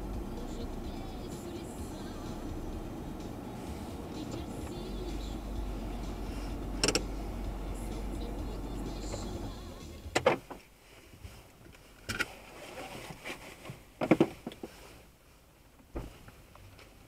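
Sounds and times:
low engine rumble: 0.0s - 12.5s.

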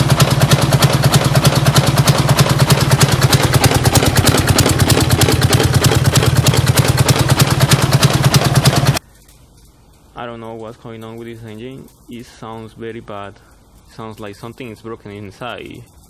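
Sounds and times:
diesel engine knocking: 0.0s - 9.0s.

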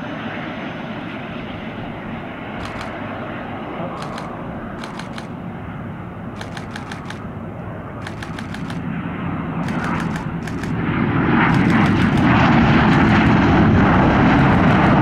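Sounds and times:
jet engines rushing: 0.0s - 15.0s
rapid clicking bursts: 2.6s - 3.0s, 4.0s - 5.3s, 6.4s - 7.2s, 8.0s - 8.8s, 9.6s - 10.8s, 11.5s - 13.3s.

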